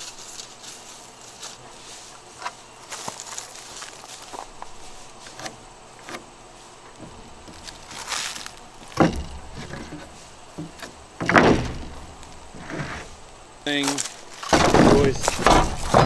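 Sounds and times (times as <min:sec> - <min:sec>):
boards clattering: 0:02.4 - 0:16.0
wooden boards knocking and scraping: 0:06.9 - 0:13.2, 0:14.0 - 0:16.0
board laid down with a knock: 0:08.9 - 0:12.1, 0:14.4 - 0:16.0.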